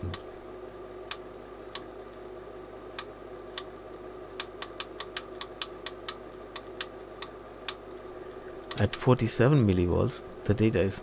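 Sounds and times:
electrical hum: 0.0 - 11.0
push button clicks: 8.7 - 9.1.

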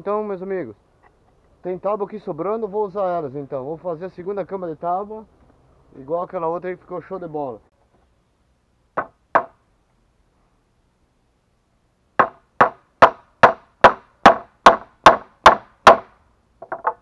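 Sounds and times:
hammer striking nails into wood: 9.0 - 9.6, 12.2 - 17.0.

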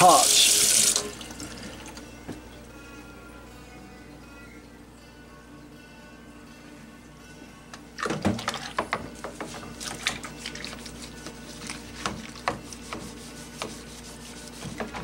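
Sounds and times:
water sloshing in a sink: 8.0 - 15.0
sponge scrubbing a bowl: 9.3 - 15.0.

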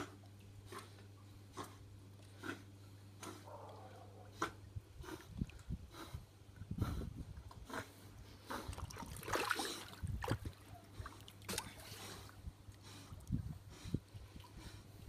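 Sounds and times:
pool water splashing: 8.6 - 12.4.

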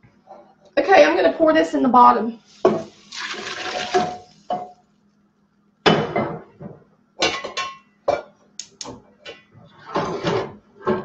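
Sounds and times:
liquid splashing into metal pot: 2.6 - 4.8
cookware clanking on stove grate: 7.2 - 8.3.

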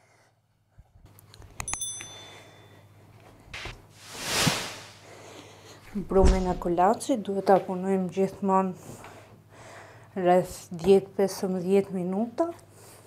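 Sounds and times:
bright bell ding: 1.7 - 2.9
whoosh: 4.0 - 5.1.

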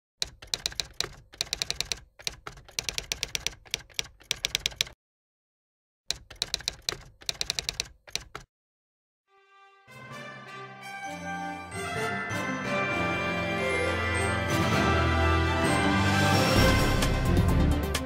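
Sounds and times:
typewriter key clacks: 6.1 - 8.5.

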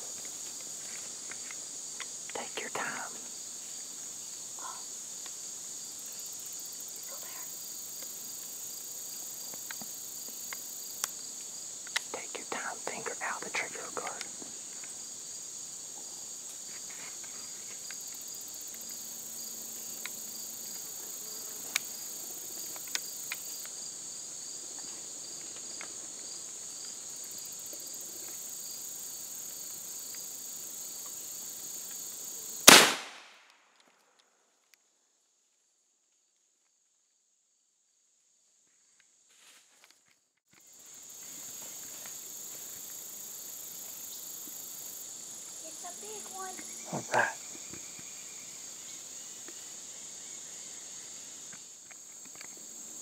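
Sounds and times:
insects buzzing: 0.0 - 33.2, 38.4 - 53.0
shotgun shot: 32.6 - 33.5.

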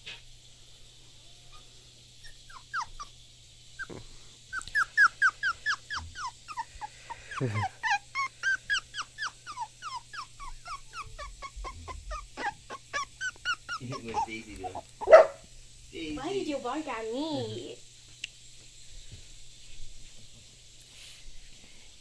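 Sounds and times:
puppy whining: 1.4 - 3.2, 3.8 - 15.4.

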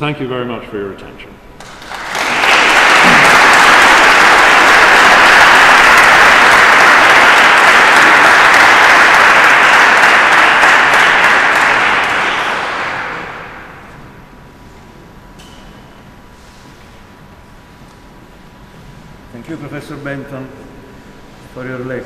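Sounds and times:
audience applauding: 1.6 - 13.9.

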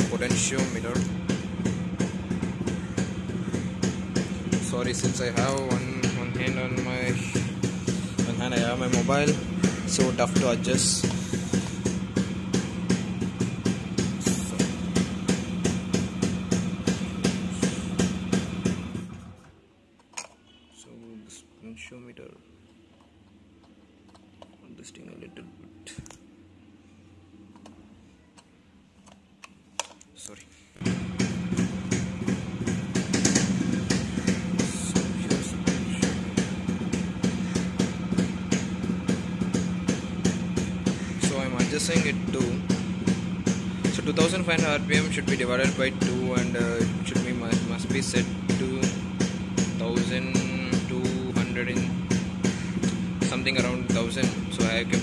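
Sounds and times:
steady low hum: 0.0 - 19.5
two-stroke motorcycle engine idling: 0.0 - 19.5, 30.8 - 55.0.

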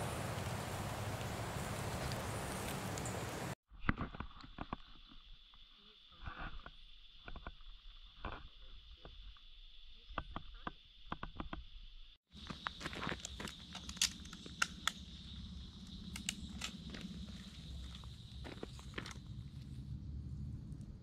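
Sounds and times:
high-pitched insect chorus: 12.3 - 20.7
clicks and rustles of handling: 12.6 - 15.0.

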